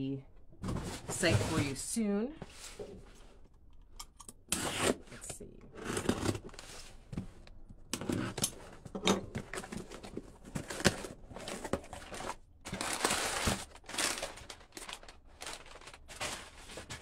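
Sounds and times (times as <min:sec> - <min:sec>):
packing paper rustling: 0:09.5 - 0:17.0.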